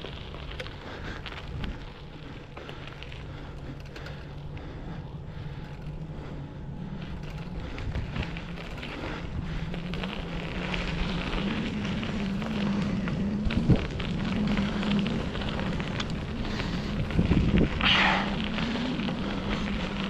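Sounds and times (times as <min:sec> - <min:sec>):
bicycle tyres on gravel: 0:00.0 - 0:20.0
grit clicking under tyres: 0:00.0 - 0:20.0
low steady hum: 0:00.0 - 0:20.0
wind on microphone: 0:12.3 - 0:20.0.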